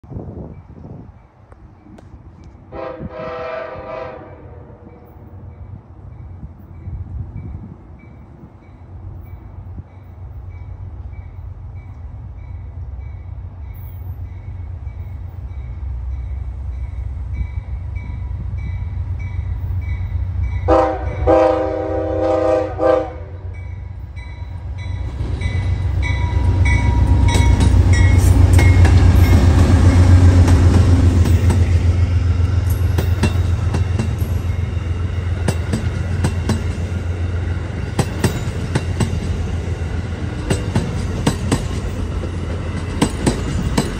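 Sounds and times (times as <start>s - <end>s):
diesel locomotive engines rumbling: 0.0s - 43.9s
locomotive horn blast: 2.7s - 5.0s, 20.6s - 23.6s
train wheels clicking over rail joints: 24.9s - 43.9s.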